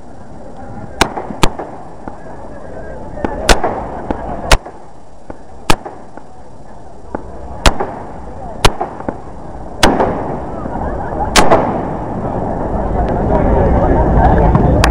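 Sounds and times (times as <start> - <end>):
fireworks bangs: 0.0 - 13.5
crowd voices: 0.0 - 14.9
fireworks cracks: 0.0 - 14.9.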